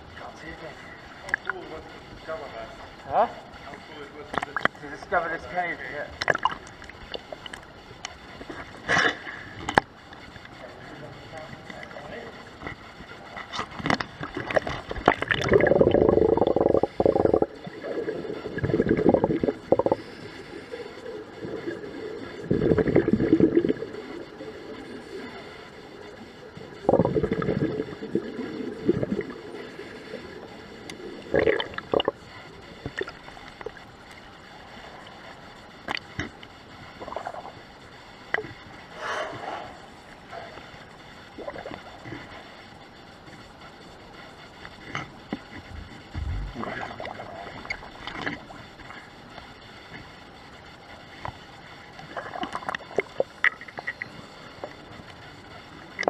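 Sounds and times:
exhaled bubbles gurgling underwater: 0:06.1 - 0:10.8, 0:11.6 - 0:51.0, 0:51.7 - 0:56.0
bubbling pops and clicks: 0:06.2 - 0:08.2, 0:13.6 - 0:20.0, 0:26.8 - 0:28.2, 0:30.9 - 0:32.2.

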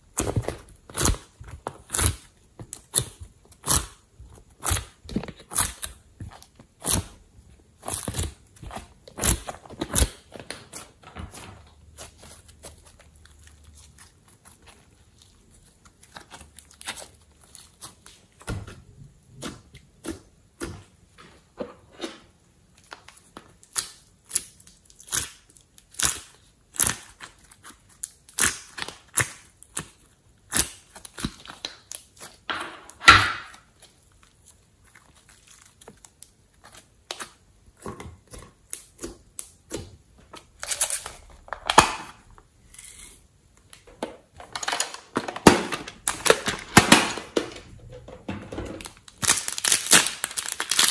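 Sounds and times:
slime squelching and popping: 0:00.0 - 0:21.1.

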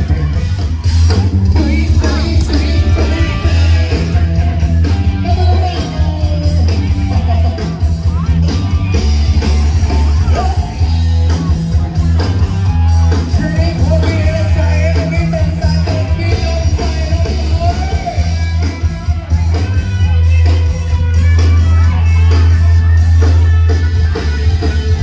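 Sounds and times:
person singing: 0:00.0 - 0:11.0, 0:13.2 - 0:19.3
guitar: 0:00.0 - 0:25.0
heavy bass line: 0:00.0 - 0:25.0.

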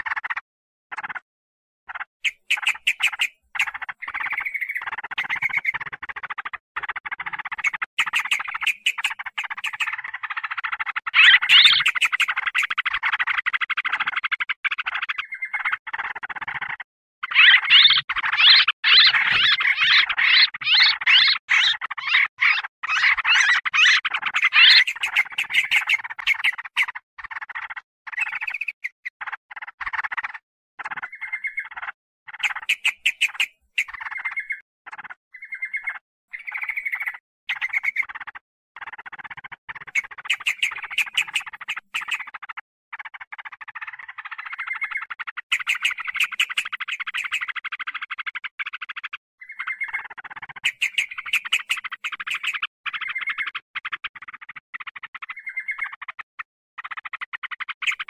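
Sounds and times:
bulbuls chattering: 0:02.2 - 0:14.1, 0:17.2 - 0:27.3, 0:28.1 - 0:29.1, 0:30.8 - 0:34.6, 0:39.2 - 0:42.4, 0:43.8 - 0:47.6, 0:49.4 - 0:53.4.

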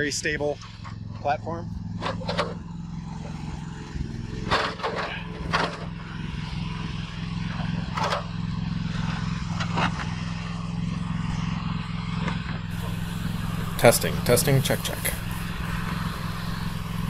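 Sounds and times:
excavator engine idling: 0:07.2 - 0:17.0.

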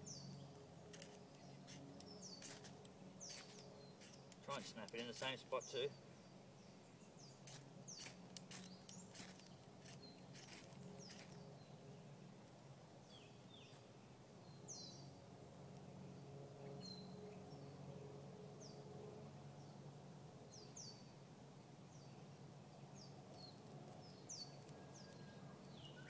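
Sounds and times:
birds chirping: 0:00.0 - 0:12.4, 0:13.0 - 0:15.2, 0:20.5 - 0:21.1, 0:21.9 - 0:26.0
light clicks and crackles: 0:00.4 - 0:05.4.

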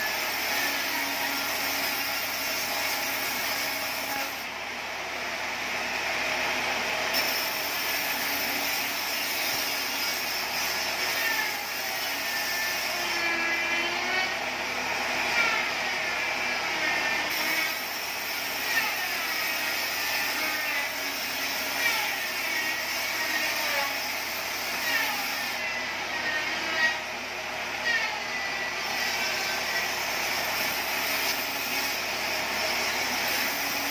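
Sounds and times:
band saw cutting wood: 0:00.0 - 0:04.5, 0:07.1 - 0:33.9.

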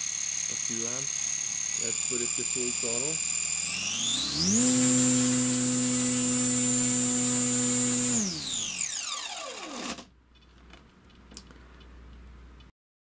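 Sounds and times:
electric motor propeller whine: 0:00.0 - 0:10.1.

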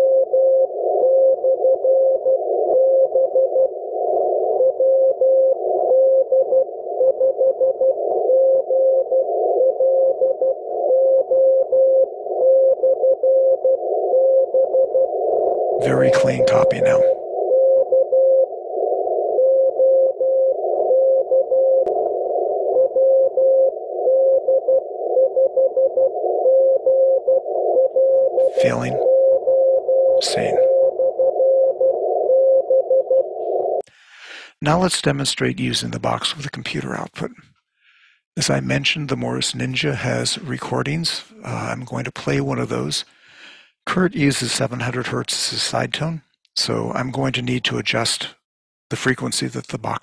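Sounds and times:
morse code beeps: 0:00.0 - 0:15.1, 0:15.8 - 0:18.5, 0:22.8 - 0:33.8
radio band hiss: 0:15.8 - 0:17.2, 0:28.4 - 0:29.1, 0:30.2 - 0:30.8.

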